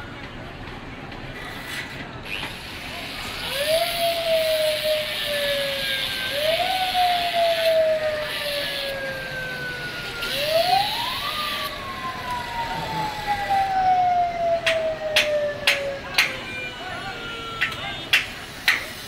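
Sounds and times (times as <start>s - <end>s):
street noise: 0.0s - 19.0s
siren wailing: 3.4s - 18.1s.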